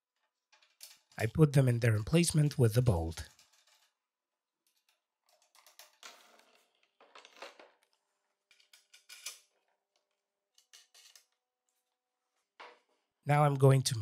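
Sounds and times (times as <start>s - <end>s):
clicks and scrapes on metal frame: 3.2s - 4.0s, 8.4s - 11.8s.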